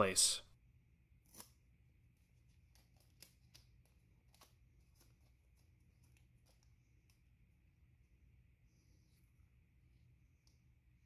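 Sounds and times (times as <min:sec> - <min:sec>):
masking tape crinkling: 0:02.2 - 0:07.3.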